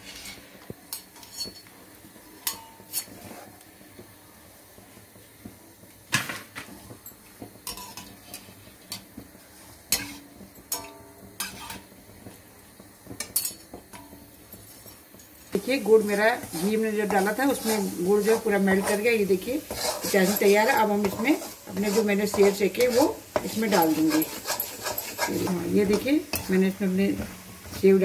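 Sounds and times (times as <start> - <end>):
frying oil sizzling: 0.0 - 28.0
metal spoon clinking on pan: 2.4 - 3.1, 9.9 - 11.8, 13.2 - 14.2.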